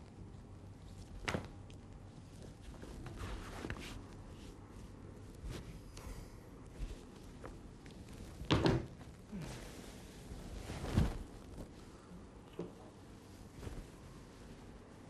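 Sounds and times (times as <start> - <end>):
cloth rustling: 0.8 - 5.9, 6.6 - 15.0
soft footsteps: 6.7 - 9.2, 9.9 - 15.0.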